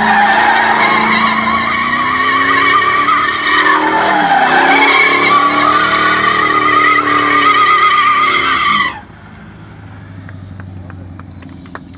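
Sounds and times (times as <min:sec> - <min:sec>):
tyres squealing: 0:00.0 - 0:09.0
car engine revving high: 0:00.0 - 0:11.1.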